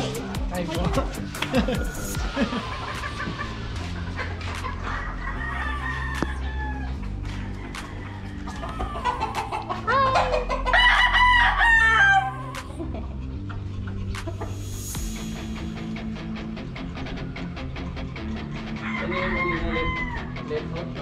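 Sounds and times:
rooster crowing: 4.8s - 12.5s, 18.8s - 20.4s.

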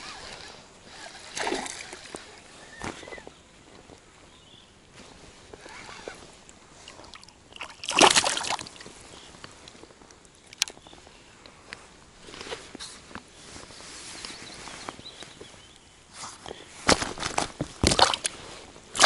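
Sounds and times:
fish splashing in water: 6.9s - 8.8s, 17.8s - 18.3s.

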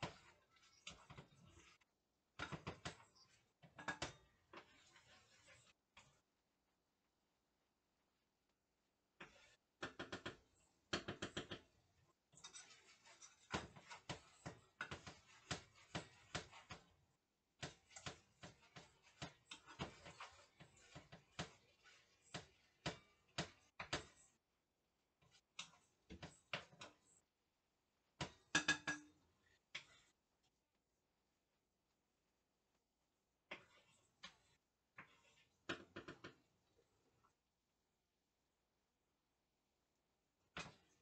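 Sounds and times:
utensils and cookware clinking: 12.3s - 16.9s, 28.2s - 29.2s.

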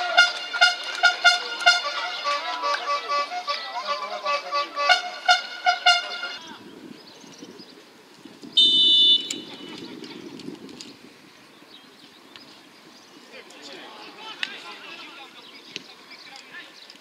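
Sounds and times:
accordion music: 0.0s - 6.6s
faint outdoor background noise: 0.0s - 17.0s
referee whistle blast: 8.6s - 9.5s.

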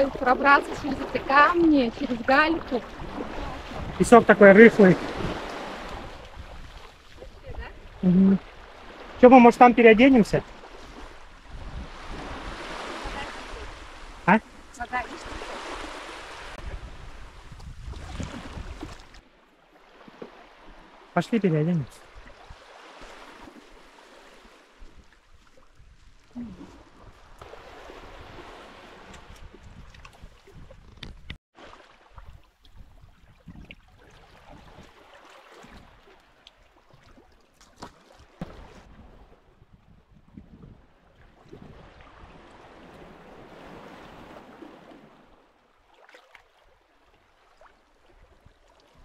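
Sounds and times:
wind buffeting microphone: 0.0s - 9.2s, 10.2s - 19.1s, 24.8s - 31.4s, 32.2s - 34.9s, 38.8s - 44.3s
surf washing on sandy beach: 0.0s - 19.2s, 26.2s - 30.0s
small waves on sandy beach: 0.0s - 30.8s, 31.5s - 49.0s.

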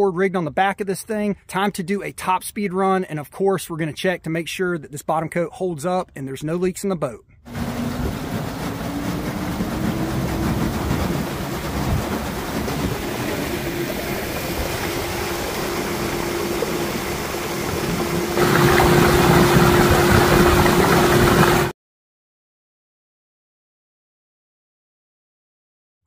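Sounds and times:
electric outboard motor whine: 7.5s - 21.7s
water rushing past hull: 7.5s - 21.7s.

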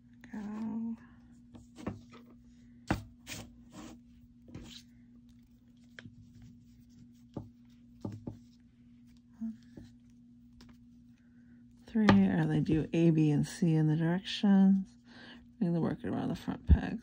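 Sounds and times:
steady low hum: 0.0s - 17.0s
yarn brushing rustles: 0.2s - 11.1s.

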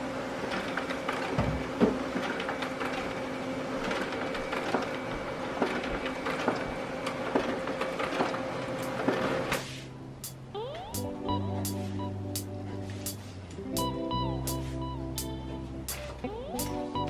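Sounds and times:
paper feed clicks: 0.4s - 9.7s.

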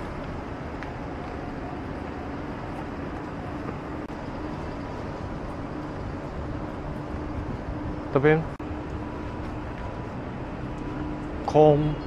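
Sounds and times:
traffic and machinery rumble: 0.0s - 12.0s.

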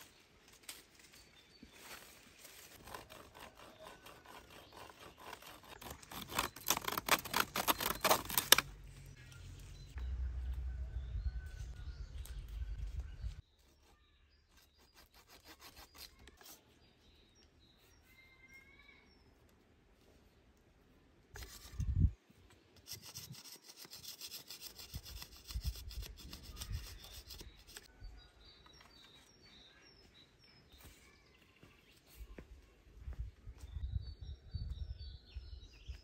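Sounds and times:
leaves rustling: 0.0s - 3.0s
faint bird chirps: 9.0s - 19.4s.

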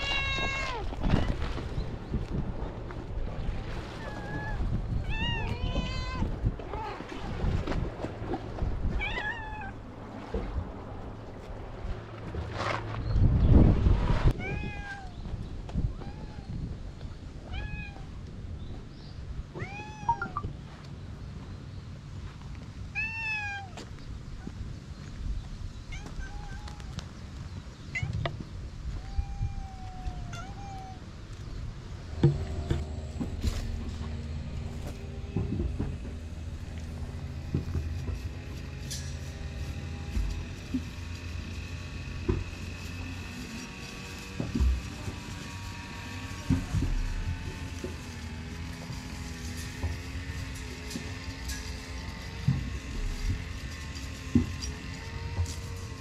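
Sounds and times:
cat meowing: 0.0s - 1.3s, 4.0s - 7.0s, 9.0s - 9.8s, 14.4s - 15.2s, 28.9s - 31.1s
low rumble on microphone: 0.0s - 21.4s, 24.0s - 56.0s
steady low hum: 31.2s - 56.0s.

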